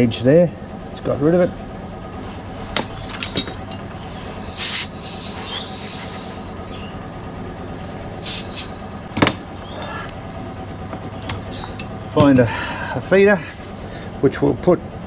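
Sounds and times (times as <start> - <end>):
machine hum: 0.0 - 15.0
compressed air blow gun hissing: 4.4 - 6.7, 8.2 - 8.9.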